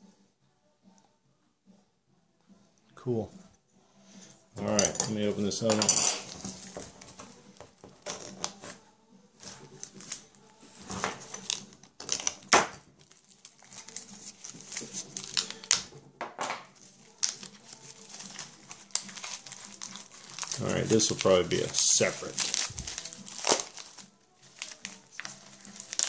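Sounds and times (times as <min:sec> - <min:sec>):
plastic crinkling: 0:06.2 - 0:08.6, 0:10.8 - 0:15.9, 0:16.8 - 0:26.0
knife slicing plastic wrap: 0:12.3 - 0:15.9, 0:17.1 - 0:26.0.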